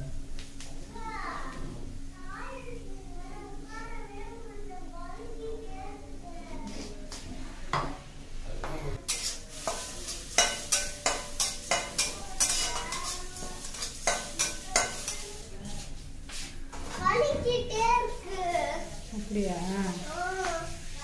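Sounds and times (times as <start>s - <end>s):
spatula scraping metal pan: 9.1s - 15.2s.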